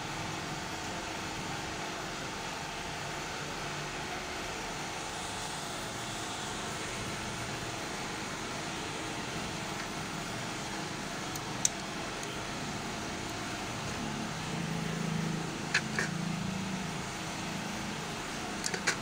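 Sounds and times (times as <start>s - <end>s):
fan machine humming: 0.0s - 19.0s.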